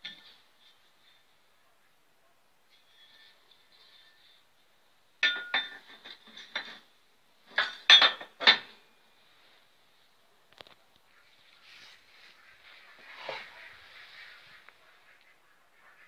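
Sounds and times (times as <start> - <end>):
steel parts clinking: 5.2 - 6.9, 7.5 - 8.8.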